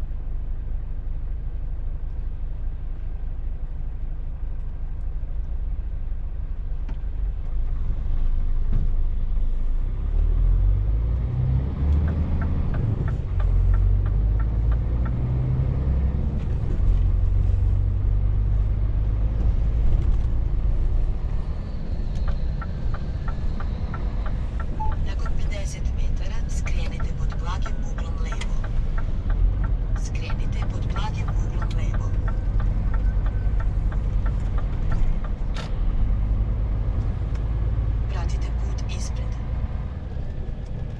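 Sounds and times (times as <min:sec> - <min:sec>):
truck diesel engine rumble: 0:00.0 - 0:40.9
regular ticking: 0:12.0 - 0:15.4, 0:22.1 - 0:35.5.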